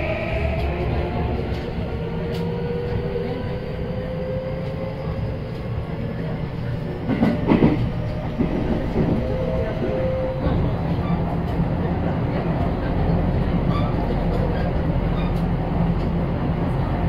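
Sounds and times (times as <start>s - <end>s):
train wheel-on-rail rumble: 0.0s - 17.0s
train wheels clattering: 7.0s - 16.2s.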